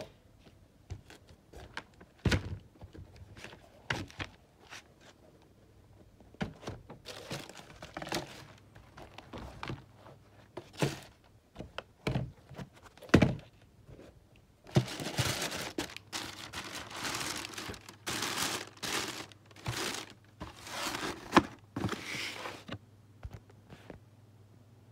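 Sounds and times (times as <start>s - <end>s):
packaging crinkling and rustling: 6.6s - 9.9s, 14.7s - 22.8s.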